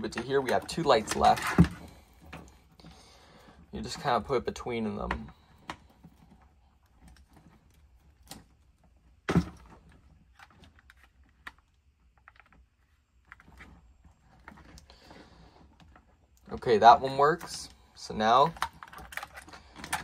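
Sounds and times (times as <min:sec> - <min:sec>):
plastic clicks and rattles: 0:18.3 - 0:20.0.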